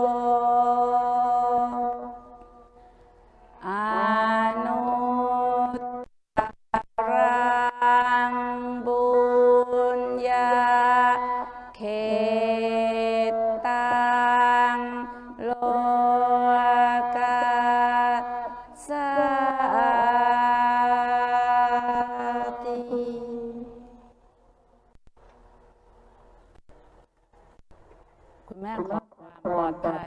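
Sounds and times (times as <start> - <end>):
mantra sung in long notes: 0.0 - 2.8, 3.5 - 24.1.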